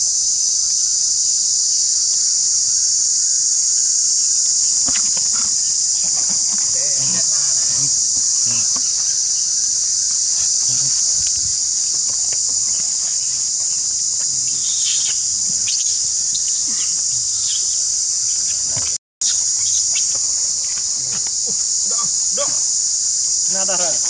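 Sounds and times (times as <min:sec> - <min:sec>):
high-pitched insect chorus: 0:00.0 - 0:24.0
young monkeys squealing: 0:04.8 - 0:17.8.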